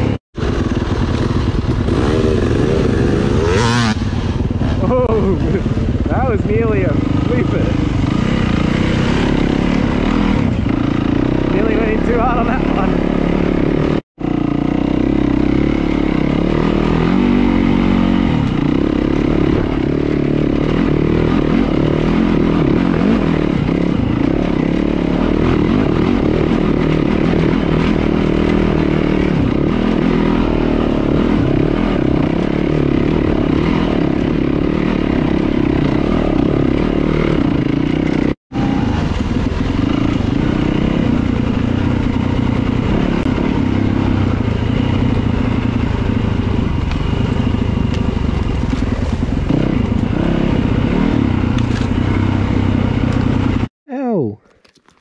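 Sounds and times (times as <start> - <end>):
dirt bike engine revving: 0.0 - 53.7.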